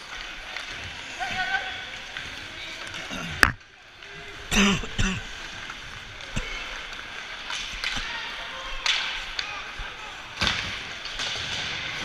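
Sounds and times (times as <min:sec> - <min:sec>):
skates scraping ice: 0:05.2 - 0:12.0
stick hitting puck: 0:08.8 - 0:09.6.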